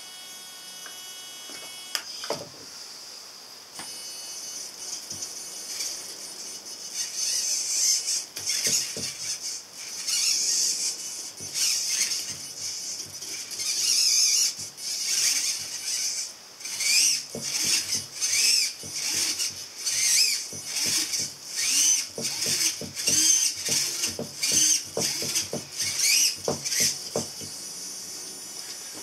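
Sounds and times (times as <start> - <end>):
servo motors whirring: 3.8 - 29.0.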